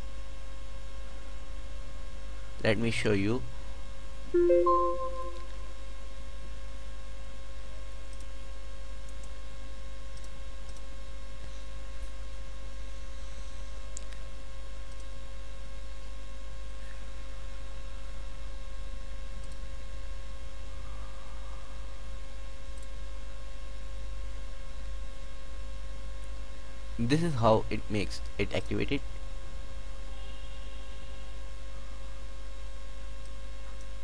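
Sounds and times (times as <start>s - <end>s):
electrical mains hum: 0.0s - 34.0s
faint clicks: 10.1s - 11.6s, 19.4s - 19.6s.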